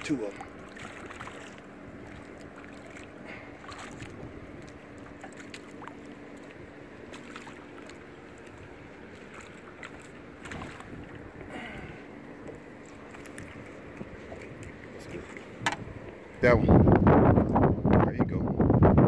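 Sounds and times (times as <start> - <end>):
small splashes: 0.0 - 15.7
choppy lake water: 0.0 - 19.0
wind: 0.0 - 19.0.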